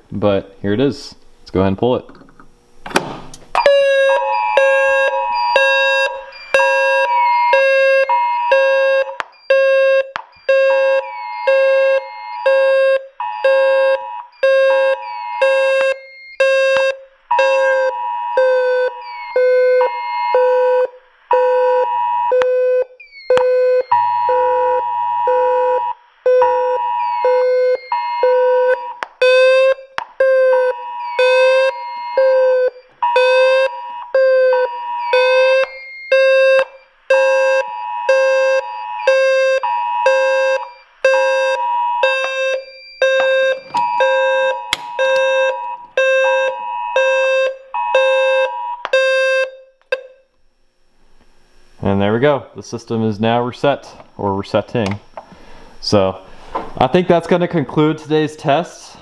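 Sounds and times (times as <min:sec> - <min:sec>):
fire alarm low pulsing tone: 0:03.5 - 0:50.8, 0:51.8 - 0:58.6
two-pitch emergency alert tone: 0:03.6 - 0:50.3.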